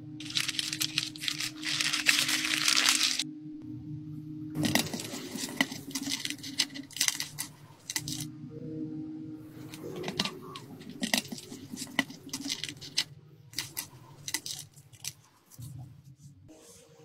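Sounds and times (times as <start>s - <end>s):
brittle seal crackling: 0.2s - 3.2s, 4.6s - 8.3s, 9.6s - 15.2s.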